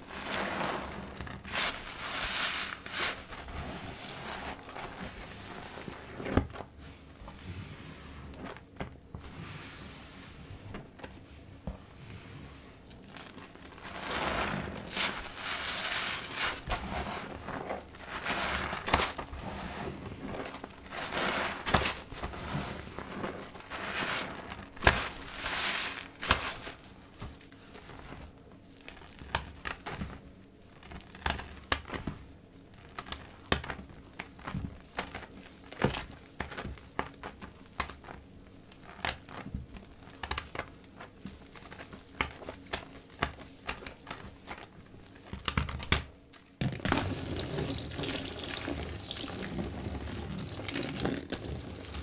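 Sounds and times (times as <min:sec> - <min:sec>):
wet sponge squelching: 0:00.0 - 0:06.4, 0:12.0 - 0:27.2, 0:46.8 - 0:52.0
foam bubbles crackling: 0:00.0 - 0:06.7, 0:13.0 - 0:27.2, 0:46.6 - 0:52.0
tap water pouring: 0:46.6 - 0:52.0.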